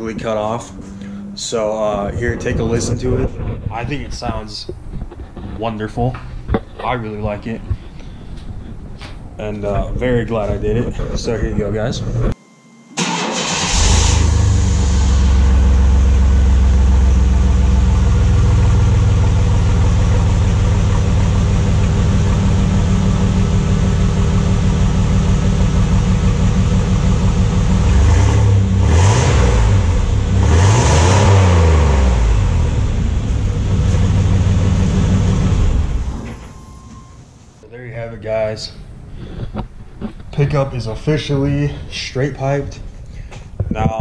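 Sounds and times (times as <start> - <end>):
loud pickup engine revving: 0.0 - 2.1, 13.4 - 36.2.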